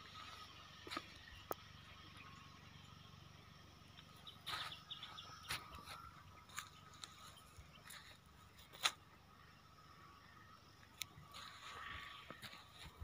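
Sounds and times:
faint outdoor ambience: 0:00.0 - 0:13.0.

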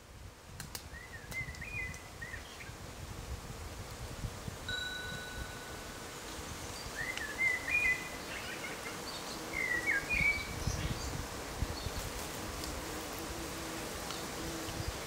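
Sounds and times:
songbird warbling: 0:06.7 - 0:11.0.

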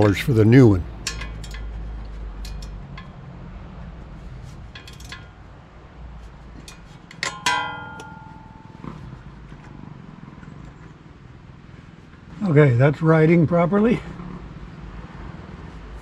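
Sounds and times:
light metal clicks and taps: 0:01.0 - 0:03.4, 0:04.7 - 0:05.4, 0:06.5 - 0:09.0
sharp ringing metal clang: 0:06.7 - 0:09.2.

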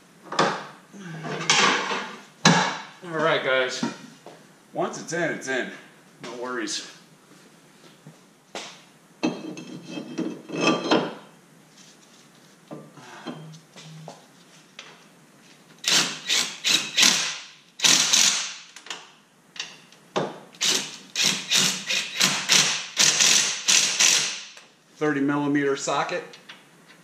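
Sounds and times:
metal tools clanking: 0:09.2 - 0:11.2.

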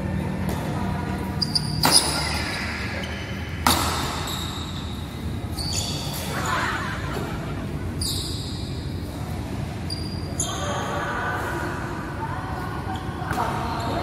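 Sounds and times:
short high squeaks: 0:01.4 - 0:03.3, 0:04.0 - 0:06.6, 0:08.0 - 0:09.2
racket hitting shuttlecock: 0:01.8 - 0:02.7, 0:03.6 - 0:04.3.

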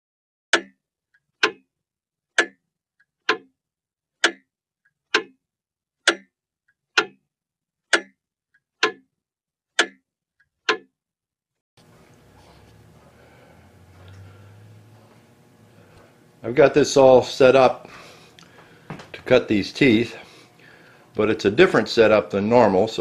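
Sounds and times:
clock ticking: 0:00.5 - 0:01.7, 0:02.3 - 0:03.6, 0:04.2 - 0:05.4, 0:06.0 - 0:09.1, 0:09.7 - 0:10.9.

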